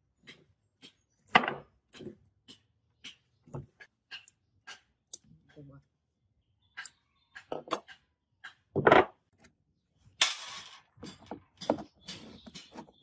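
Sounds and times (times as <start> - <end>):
hand tools clicking on wooden bench: 1.9 - 5.2.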